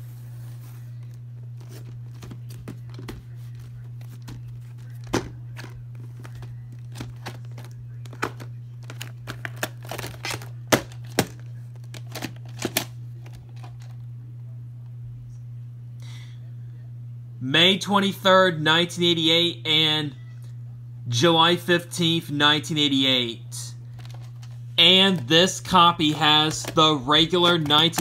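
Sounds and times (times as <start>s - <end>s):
steady low hum: 0.0s - 28.0s
plastic case clicks and rustles: 4.2s - 14.0s, 24.0s - 24.6s, 26.0s - 28.0s.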